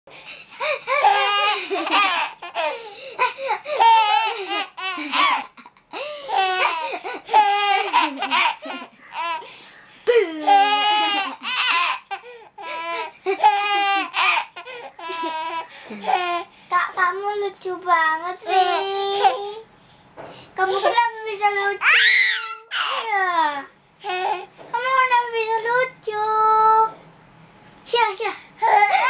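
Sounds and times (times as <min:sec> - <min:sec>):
baby laughing: 0:00.5 - 0:09.5, 0:10.1 - 0:16.4.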